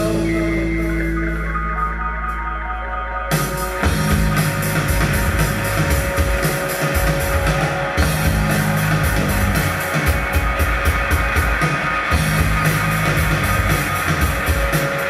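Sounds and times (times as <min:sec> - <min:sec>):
guitar: 0:00.0 - 0:15.0
rock band playing live: 0:00.0 - 0:15.0
drum kit beat: 0:03.3 - 0:15.0.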